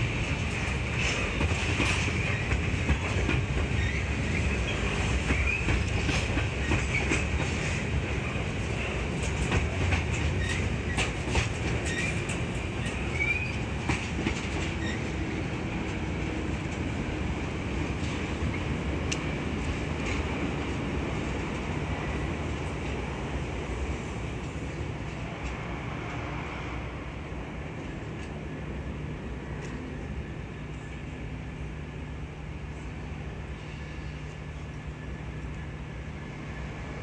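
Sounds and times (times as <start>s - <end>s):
train wheels rumbling on rails: 0.0s - 37.0s
wheels clicking over rail joints: 9.1s - 17.2s.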